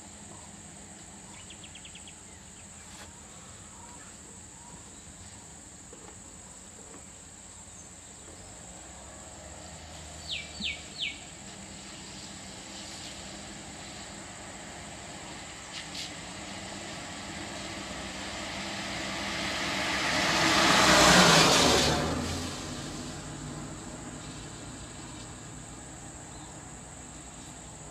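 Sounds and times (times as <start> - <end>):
tyres hissing on wet road: 5.6 - 27.9.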